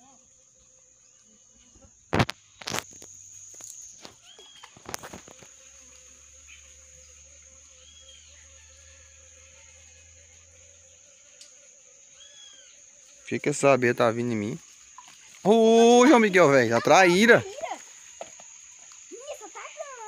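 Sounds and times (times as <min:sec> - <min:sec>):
insects buzzing: 0:00.0 - 0:20.0
bird chirping: 0:04.2 - 0:04.9, 0:06.4 - 0:08.6.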